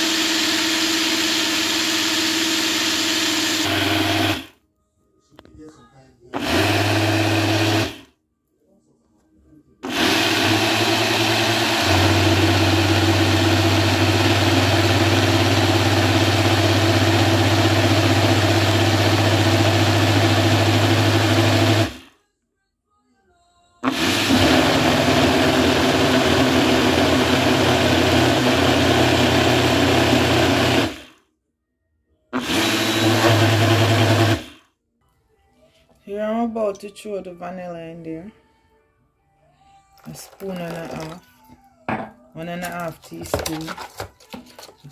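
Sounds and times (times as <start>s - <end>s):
blender motor hum and whir: 0.0s - 4.6s, 6.3s - 8.1s, 9.8s - 22.1s, 23.8s - 31.2s, 32.4s - 34.6s, 40.0s - 41.2s.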